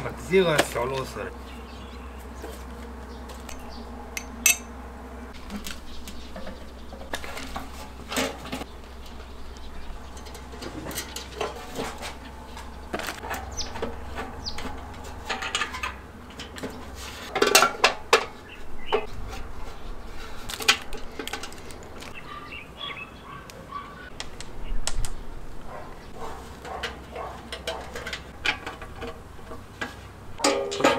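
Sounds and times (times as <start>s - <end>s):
metal grill parts clinking: 4.2s - 4.7s, 10.0s - 18.4s, 26.6s - 30.9s.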